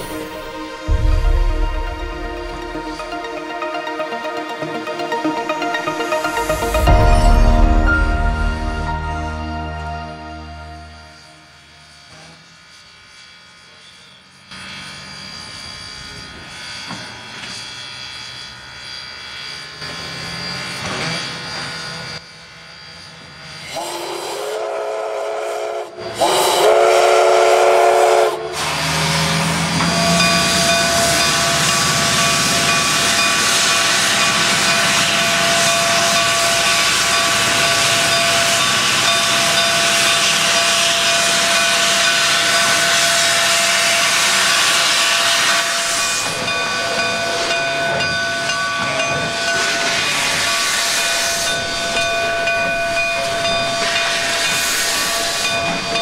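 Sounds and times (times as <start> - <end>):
steam locomotive whistle blasts: 23.7 - 48.1
loud hiss of steam: 23.8 - 26.9, 27.6 - 47.7.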